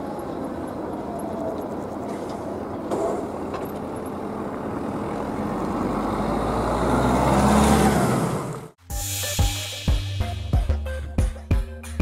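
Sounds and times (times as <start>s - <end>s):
road vehicle approaching: 0.0s - 8.8s.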